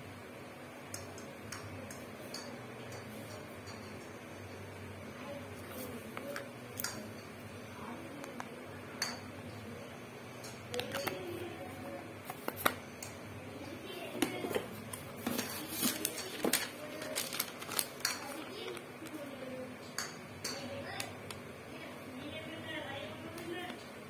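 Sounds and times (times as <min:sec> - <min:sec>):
plastic jar handling: 0:14.2 - 0:18.8
paper crackling: 0:15.2 - 0:19.2.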